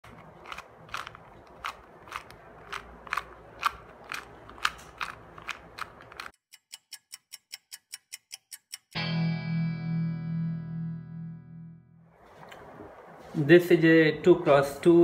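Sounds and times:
puzzle cube clicking: 0.1s - 6.4s.

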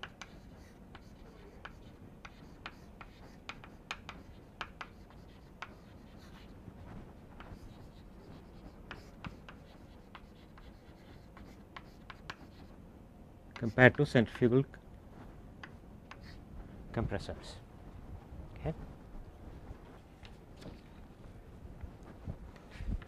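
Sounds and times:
chalk writing on blackboard: 0.0s - 12.7s, 13.6s - 14.2s, 15.6s - 16.4s.

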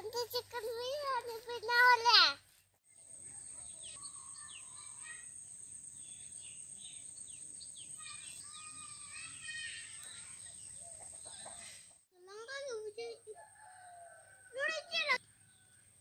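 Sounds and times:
birds chirping: 2.9s - 12.0s.

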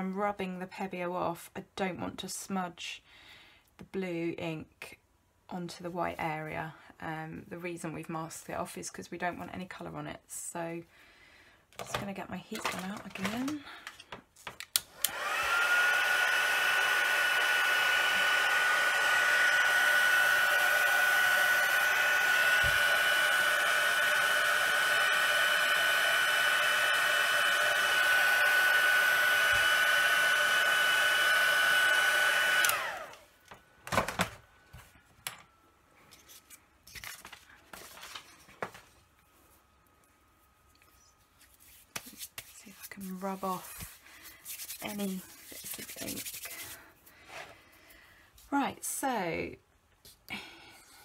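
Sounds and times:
heat gun switch: 14.6s - 33.2s
heat gun fan whine: 14.7s - 35.6s.

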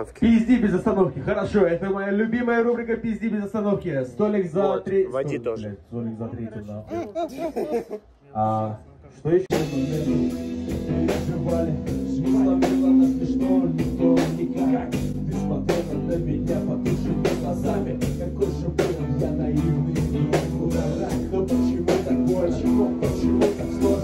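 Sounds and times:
bass guitar: 9.5s - 24.0s
drum kit beat: 9.5s - 24.0s
guitar: 9.5s - 24.0s.

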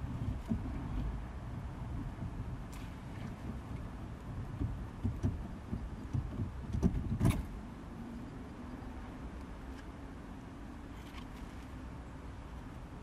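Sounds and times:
gear lever knocks and clicks: 4.4s - 7.5s.

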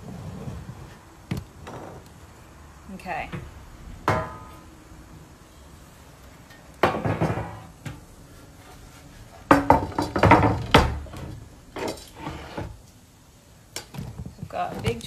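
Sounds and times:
kitchenware clattering and clinking: 6.8s - 7.7s, 9.5s - 12.7s.

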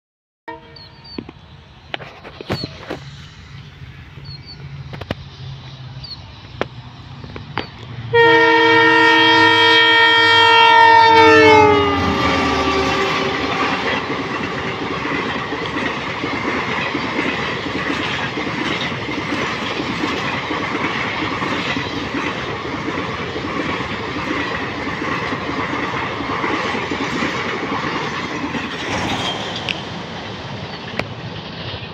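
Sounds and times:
train horn blaring: 0.5s - 1.2s, 8.1s - 15.6s
train wheels rumbling and clattering: 0.8s - 10.1s, 11.5s - 31.9s.

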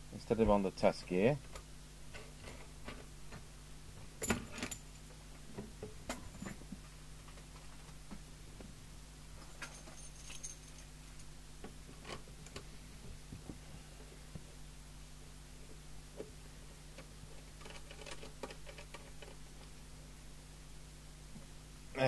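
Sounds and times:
low steady hum: 0.0s - 22.0s
metallic clicks and jingling: 9.4s - 11.0s.

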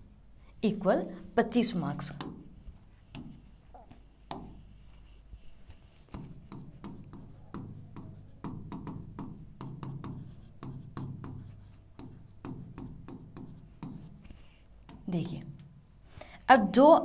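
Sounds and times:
stylus tapping on screen: 2.0s - 4.7s, 6.0s - 14.1s.

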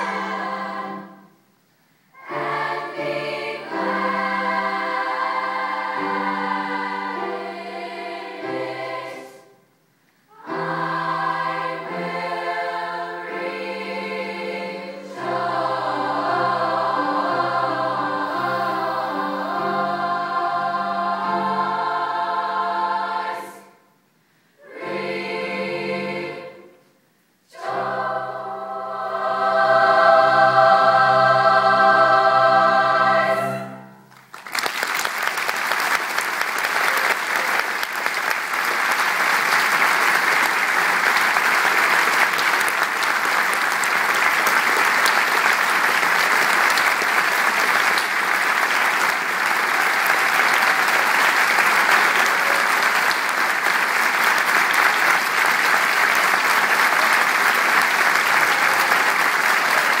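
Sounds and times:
choir singing a chord: 0.0s - 1.4s, 2.2s - 9.6s, 10.3s - 23.8s, 24.4s - 26.9s, 27.5s - 34.1s
audience applauding: 34.1s - 60.0s.

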